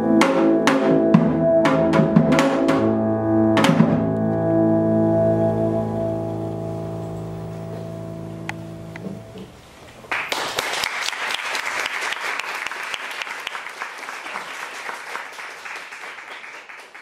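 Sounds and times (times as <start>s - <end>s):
audience applauding: 10.1s - 17.0s.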